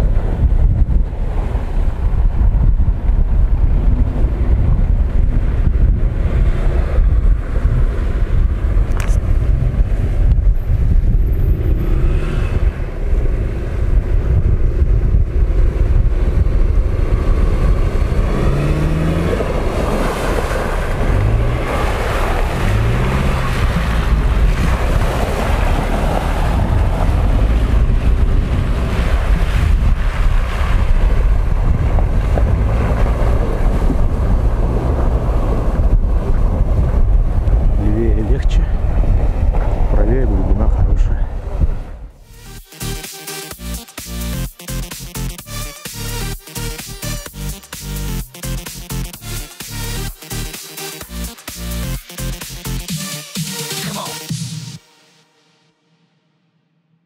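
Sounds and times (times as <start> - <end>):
wind buffeting microphone: 0.0 - 42.2
car engine revving: 3.5 - 37.8, 41.4 - 55.1
tyres splashing through slush: 19.2 - 27.3.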